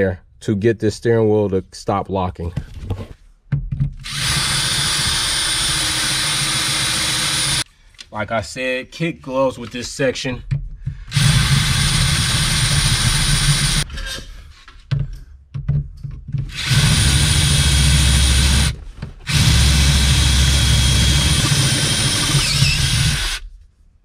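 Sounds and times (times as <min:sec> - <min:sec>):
cordless drill drilling: 0:04.0 - 0:07.6, 0:11.1 - 0:13.8, 0:16.5 - 0:23.4.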